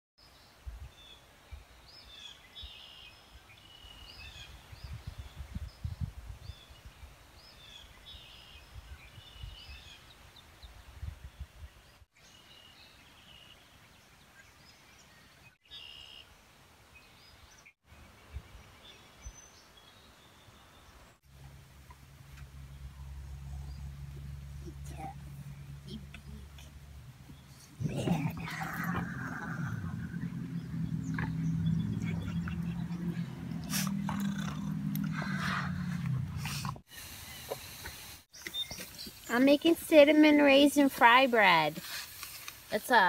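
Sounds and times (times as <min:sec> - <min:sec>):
low irregular rumbling: 0:21.3 - 0:36.9
small birds chirping: 0:21.8 - 0:43.0.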